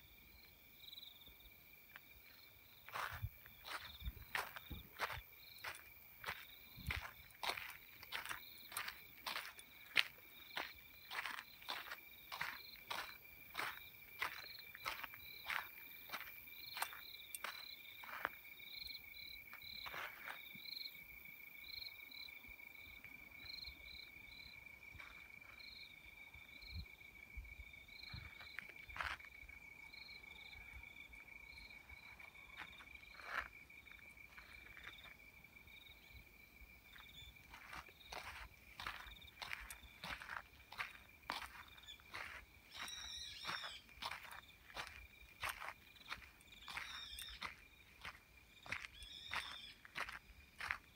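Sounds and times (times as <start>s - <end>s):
high pulsing insect call: 0.0s - 50.9s
insects trilling: 0.0s - 50.9s
footsteps on gravel: 1.9s - 18.5s, 19.4s - 20.6s, 32.4s - 35.2s, 36.9s - 50.9s.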